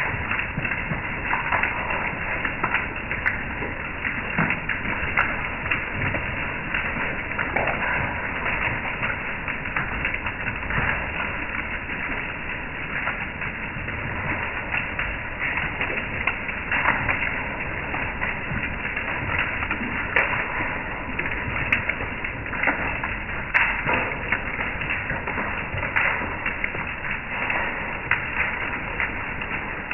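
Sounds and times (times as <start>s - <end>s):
hail and heavy rain pelting: 0.0s - 29.9s.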